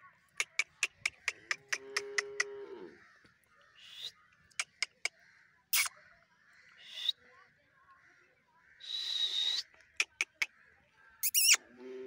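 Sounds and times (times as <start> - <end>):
parakeet clicks: 0.4 - 2.5
parakeet squawk: 11.2 - 11.6
warbling parakeet screech: 11.2 - 11.6.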